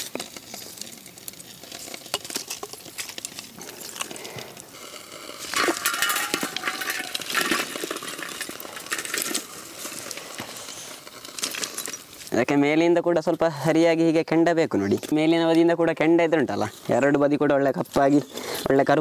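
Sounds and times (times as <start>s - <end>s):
embers clinking and rattling: 0.0s - 12.6s
metal ladle scraping: 4.9s - 12.3s.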